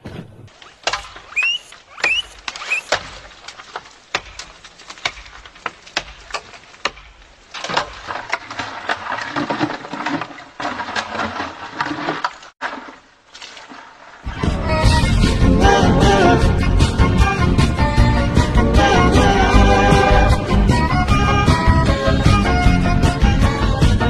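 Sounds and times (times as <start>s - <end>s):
sharp wooden cracks and knocks: 0.0s - 14.0s
rough crackle: 0.1s - 14.4s.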